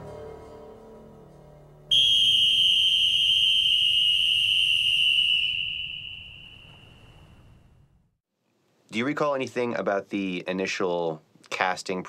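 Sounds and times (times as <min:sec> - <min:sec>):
long shrill whistle blast: 0:01.9 - 0:07.6.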